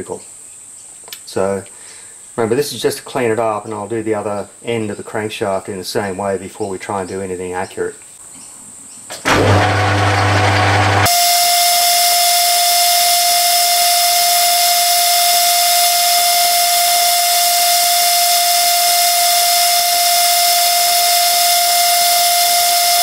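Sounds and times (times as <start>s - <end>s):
metal lathe cutting whine: 9.3s - 23.0s.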